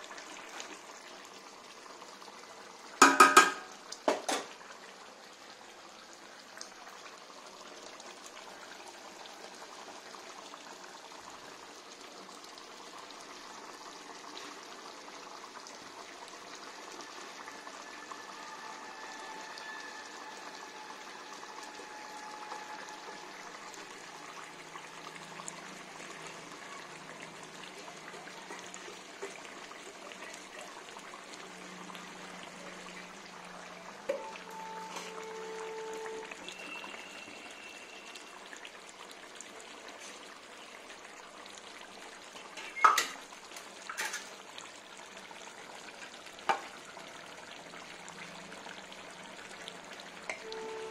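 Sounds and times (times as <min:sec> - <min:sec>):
faint thin tone: 0:34.0 - 0:38.4.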